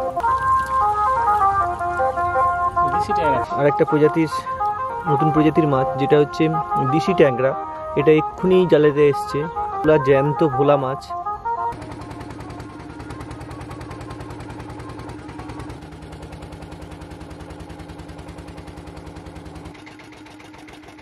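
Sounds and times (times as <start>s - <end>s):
boat motor chugging: 11.6s - 21.0s.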